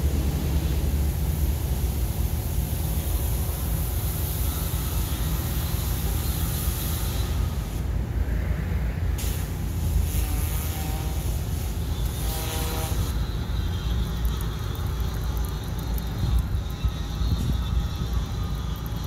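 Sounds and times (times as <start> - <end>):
hiss of water spray: 0.0 - 7.9, 9.2 - 13.4
pressure washer rumble: 0.0 - 8.0, 9.2 - 19.0.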